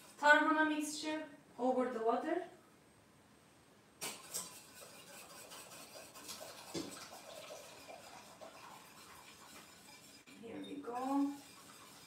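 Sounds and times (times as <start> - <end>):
spoon scraping a glass bowl: 4.0 - 12.0.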